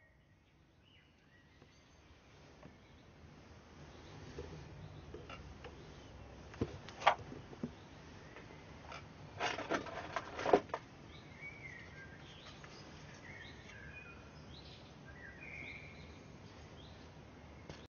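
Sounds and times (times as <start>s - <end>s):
faint bird chirps: 0.0s - 3.1s
clicks and rustling: 6.5s - 7.8s, 8.4s - 10.9s.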